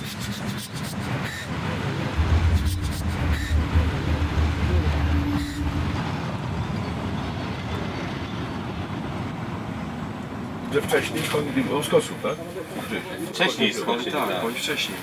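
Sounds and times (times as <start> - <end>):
train rumbling and rattling past: 0.9 - 12.2.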